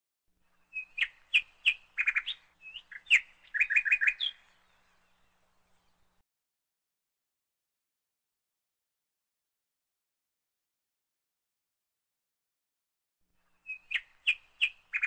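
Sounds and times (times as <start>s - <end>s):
songbird singing: 0.4s - 6.2s, 13.4s - 15.0s.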